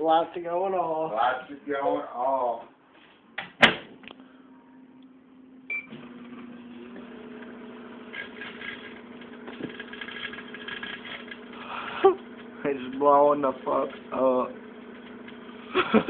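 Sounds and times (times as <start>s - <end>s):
microwave oven humming: 4.1s - 16.0s.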